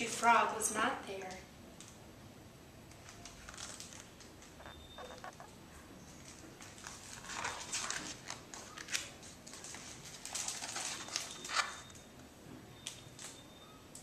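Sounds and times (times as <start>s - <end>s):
book page rustling: 3.0s - 4.1s, 6.3s - 11.8s.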